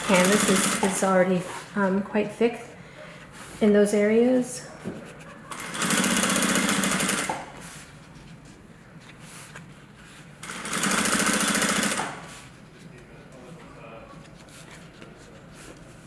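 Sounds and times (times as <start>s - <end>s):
sewing machine stitching: 0.0s - 1.0s, 5.5s - 7.5s, 10.4s - 12.3s.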